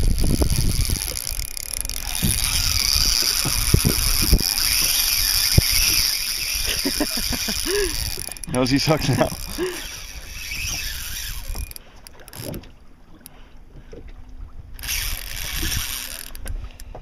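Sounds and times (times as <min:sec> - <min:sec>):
fishing reel drag whirring: 0:00.0 - 0:12.6, 0:14.8 - 0:17.0.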